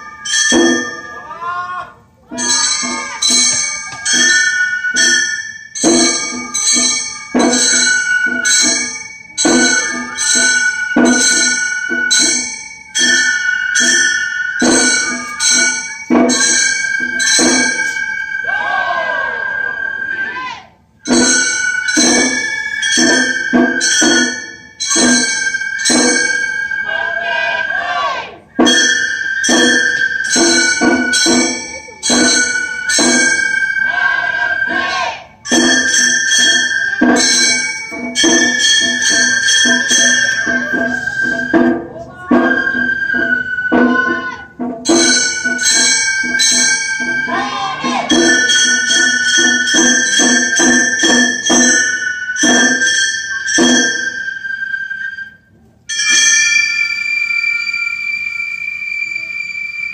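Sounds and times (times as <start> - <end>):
hand gongs ringing: 0.0 - 18.5, 21.0 - 27.7, 28.6 - 58.2
held high flute note: 25.2 - 49.2, 53.7 - 59.9
small gongs struck: 35.5 - 43.1.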